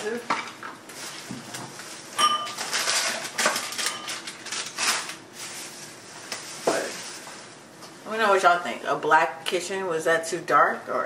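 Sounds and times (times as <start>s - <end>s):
wine glasses clinking: 2.2s - 2.6s.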